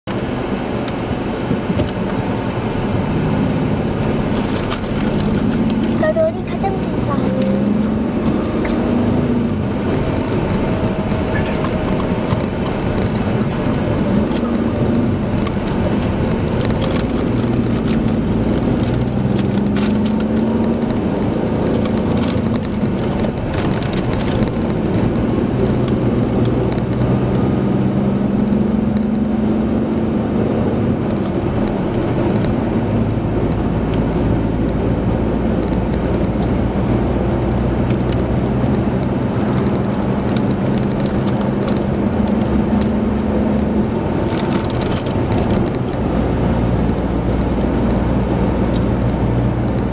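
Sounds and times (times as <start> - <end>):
low engine hum: 0.0 - 49.9
tyre and road noise: 0.0 - 49.9.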